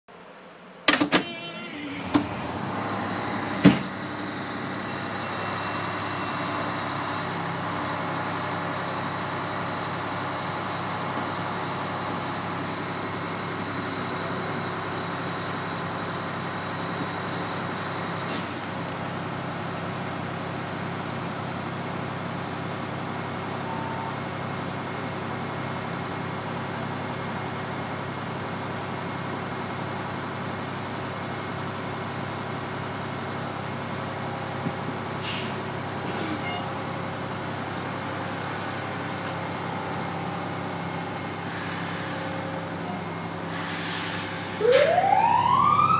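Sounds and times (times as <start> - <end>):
diesel engine running: 1.0 - 45.4.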